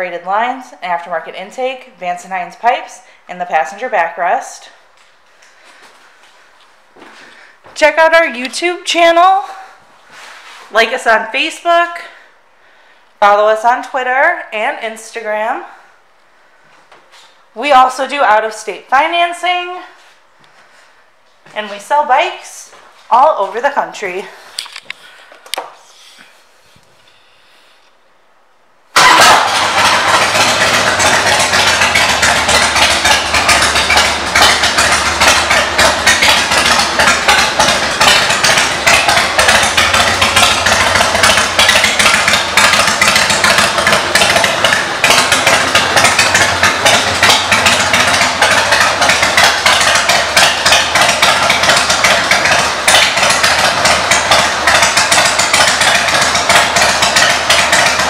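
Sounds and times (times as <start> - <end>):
motorcycle engine idling: 29.0 - 58.0.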